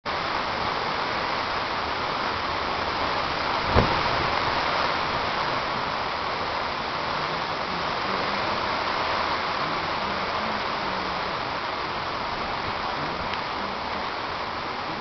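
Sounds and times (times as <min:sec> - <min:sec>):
driving rain: 0:00.1 - 0:15.0
strong wind: 0:00.1 - 0:15.0
short sharp knock: 0:03.7 - 0:04.1.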